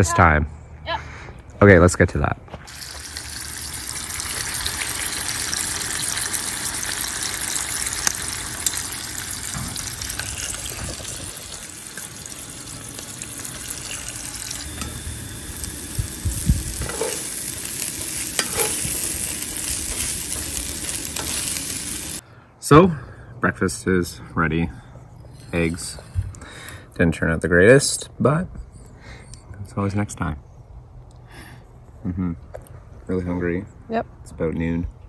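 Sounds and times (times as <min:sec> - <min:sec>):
food sizzling in a skillet: 0:02.7 - 0:22.2
spatula scraping a pan: 0:16.8 - 0:21.9.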